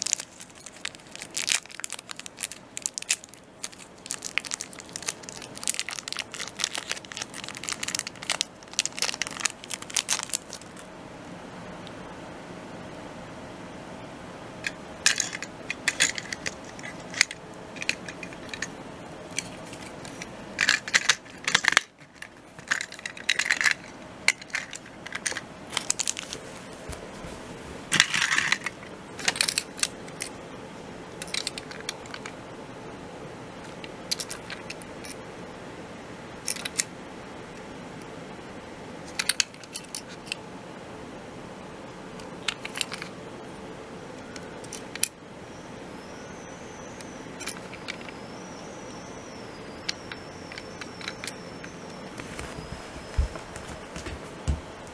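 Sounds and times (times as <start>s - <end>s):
plastic toy parts clicking: 0.0s - 10.8s, 19.3s - 26.2s, 34.1s - 35.2s
faint steady hum: 0.0s - 54.9s.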